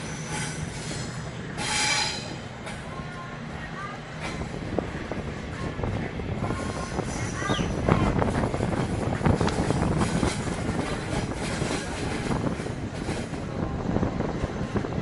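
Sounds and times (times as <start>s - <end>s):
train wheels rumbling on rail: 0.0s - 15.0s
wheels clacking on rail: 0.0s - 15.0s
wind on microphone: 4.2s - 15.0s.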